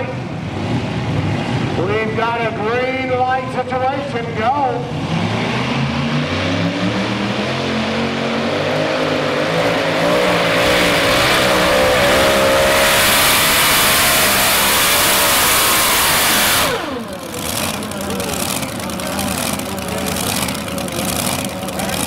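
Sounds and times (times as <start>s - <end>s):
pulling tractor engines at full throttle: 0.0s - 22.0s.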